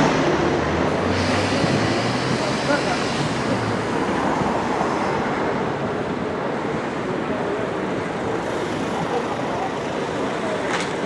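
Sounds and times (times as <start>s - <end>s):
cars passing: 0.0s - 11.0s.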